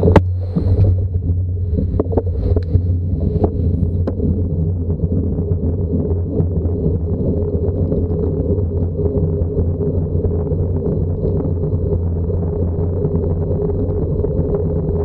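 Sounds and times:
vehicle engine running: 0.0s - 5.1s
wind buffeting microphone: 0.0s - 15.0s.

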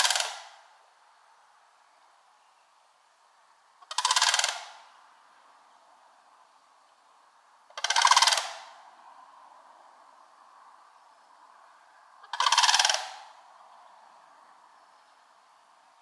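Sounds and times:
cranes rattling calls: 0.0s - 0.4s, 3.8s - 4.8s, 7.7s - 8.8s, 12.2s - 13.4s.

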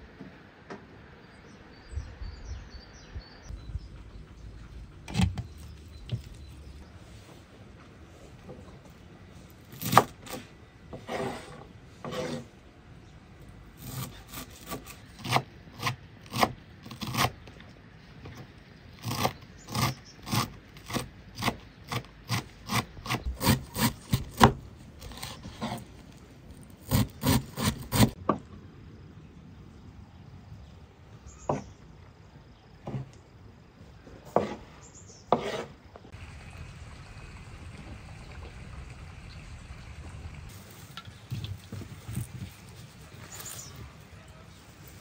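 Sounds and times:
knife chopping on wooden board: 22.7s - 24.6s, 34.4s - 34.6s, 35.3s - 35.7s.

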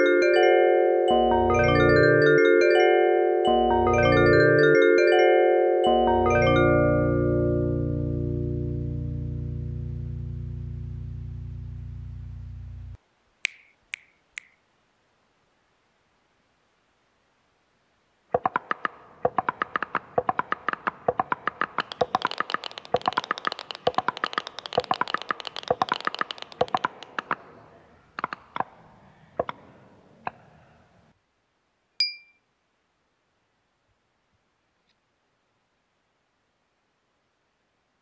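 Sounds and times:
plucked string notes: 5.8s - 13.0s
small glass tapped ding: 32.0s - 32.4s.

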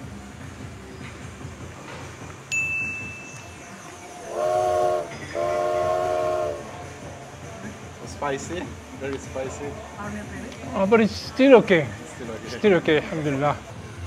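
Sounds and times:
train horn blasts: 4.2s - 6.9s.

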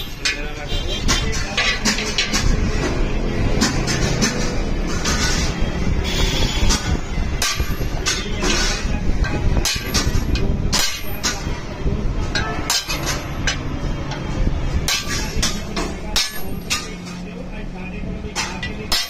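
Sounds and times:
hammer striking steel on anvil: 6.8s - 8.8s, 9.6s - 11.4s, 12.3s - 14.2s, 14.8s - 17.0s, 18.4s - 19.0s.

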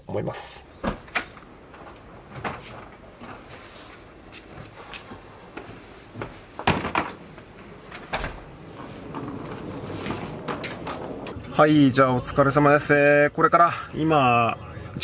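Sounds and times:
knocks and clunks of handling: 0.8s - 11.4s.

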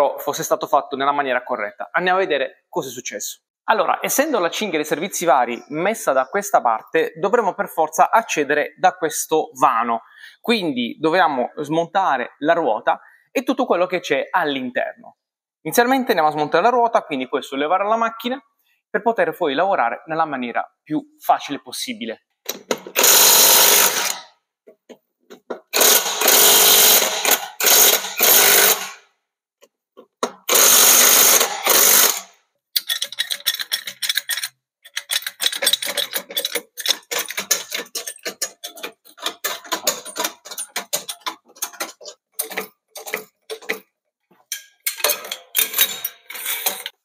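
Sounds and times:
impact wrench hammering: 22.5s - 24.3s, 25.5s - 29.0s, 30.2s - 32.3s
floor jack pumping clicks: 34.9s - 43.9s.

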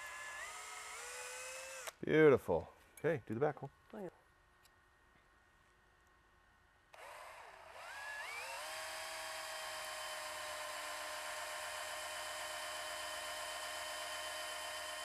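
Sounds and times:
drill whining into plastic: 0.0s - 2.0s, 7.0s - 15.0s.

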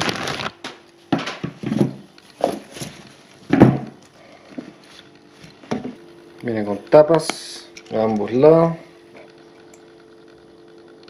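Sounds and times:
packaging rustling and crinkling: 0.0s - 5.6s.

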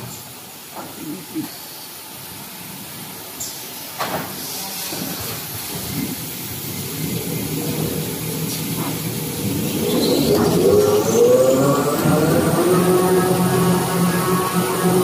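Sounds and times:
machine humming: 6.8s - 15.0s.

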